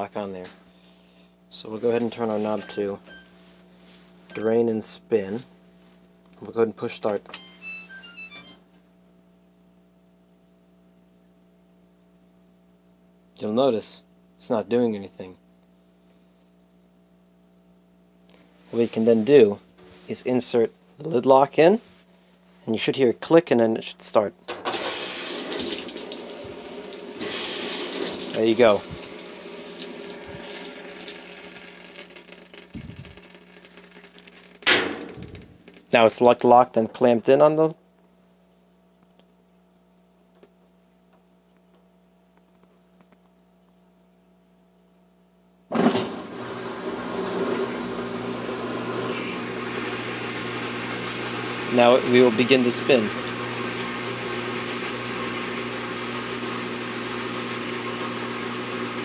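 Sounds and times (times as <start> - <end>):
washing machine hum: 24.5 - 36.1, 45.7 - 59.0
water spraying into washer basket: 24.7 - 34.7.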